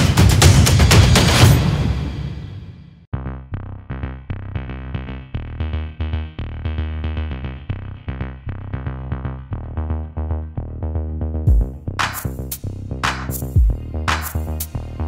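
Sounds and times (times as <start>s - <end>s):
electronic music with heavy bass: 3.1s - 15.0s.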